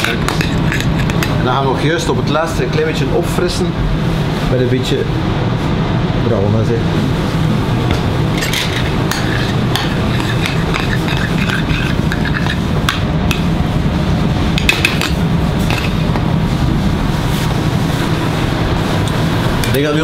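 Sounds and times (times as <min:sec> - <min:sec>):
metal spoon scraping saucepan: 0:00.0 - 0:01.4, 0:08.3 - 0:12.7
steady low hum: 0:00.0 - 0:20.0.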